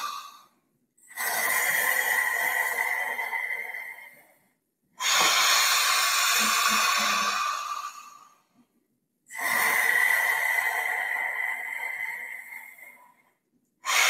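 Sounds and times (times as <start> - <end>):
loud forceful breathing: 0.0 - 0.5, 5.0 - 8.5, 9.3 - 13.0.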